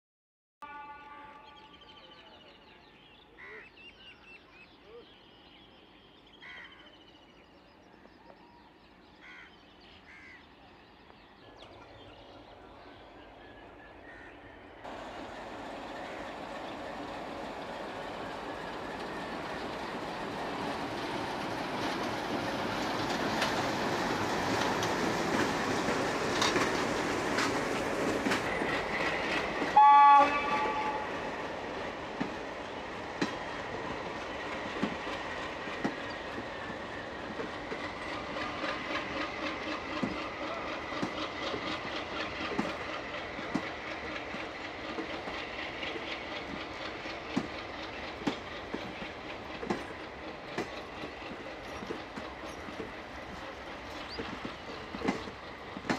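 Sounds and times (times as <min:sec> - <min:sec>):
train horn blast: 0:00.6 - 0:02.1, 0:29.7 - 0:31.5
diesel locomotive running: 0:10.5 - 0:55.9
train wheels clacking on rail joints: 0:15.6 - 0:29.8, 0:30.4 - 0:55.9.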